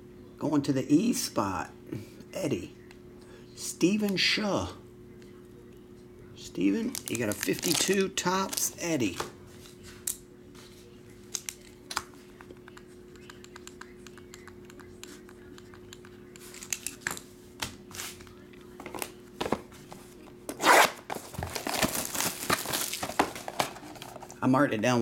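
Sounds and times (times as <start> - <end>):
faint steady hum: 0.0 - 25.0
plastic wrap tearing: 6.9 - 8.8, 20.6 - 24.3.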